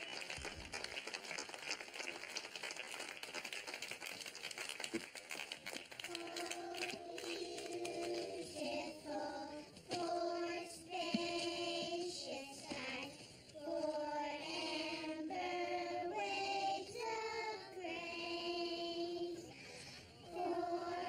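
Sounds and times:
children singing together: 6.1s - 21.0s.

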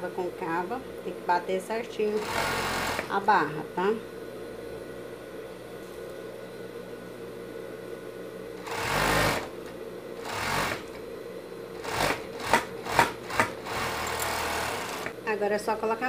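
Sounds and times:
sewing machine stitching: 2.2s - 3.1s, 8.7s - 9.5s, 10.2s - 11.0s, 11.8s - 15.1s.

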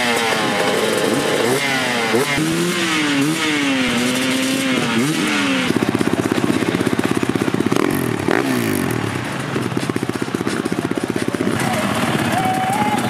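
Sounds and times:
dirt bike engine idling: 0.0s - 13.0s
dirt bike revving: 0.0s - 13.0s.

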